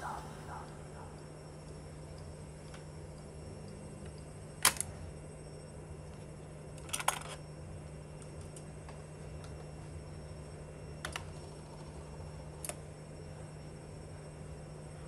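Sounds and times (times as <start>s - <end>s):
steady low hum: 0.0s - 15.0s
cassette deck mechanical clicks: 4.6s - 5.0s.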